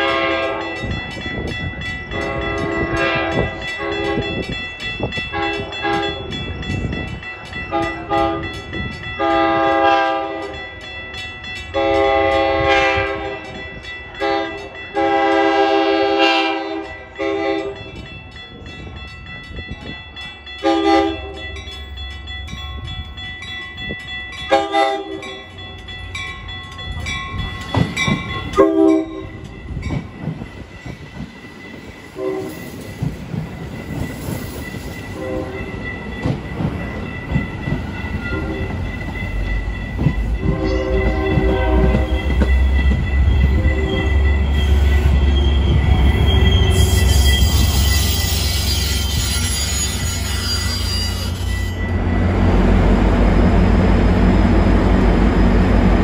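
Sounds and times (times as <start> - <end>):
train horn blasts: 0.0 - 0.8, 2.1 - 4.4, 5.3 - 6.3, 7.7 - 8.6, 9.2 - 10.6, 11.8 - 13.6, 14.2 - 17.8, 20.6 - 21.5, 24.5 - 25.4, 28.6 - 29.4, 32.2 - 32.7, 35.2 - 35.7, 40.4 - 42.4
train rumbling on rails: 0.0 - 56.0.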